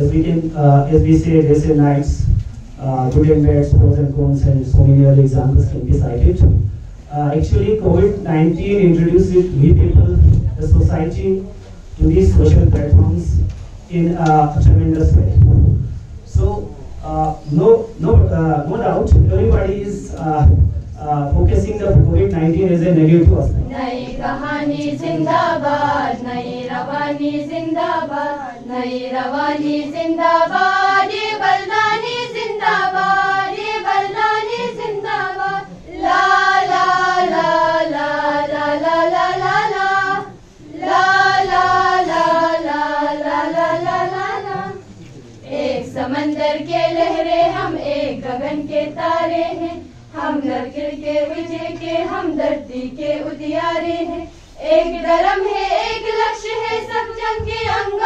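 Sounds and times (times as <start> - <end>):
women singing in unison: 23.6 - 58.0.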